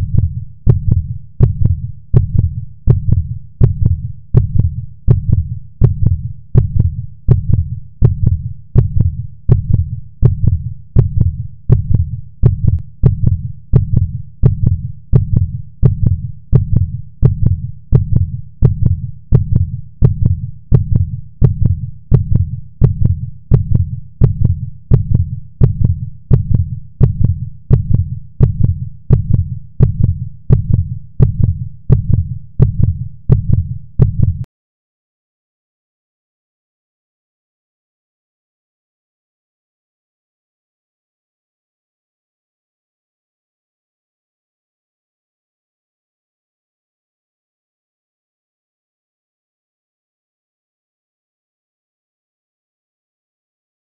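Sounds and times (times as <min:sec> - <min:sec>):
deep heartbeat thumps: 0:00.0 - 0:34.5.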